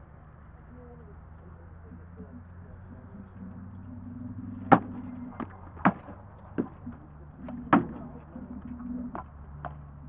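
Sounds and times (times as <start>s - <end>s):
swords striking shields and armour: 4.7s - 6.9s, 7.5s - 8.0s.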